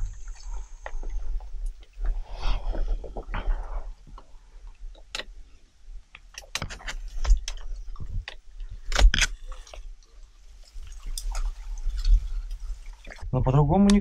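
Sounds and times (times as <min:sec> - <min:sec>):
dry reeds rustling and cracking: 0:10.5 - 0:13.2.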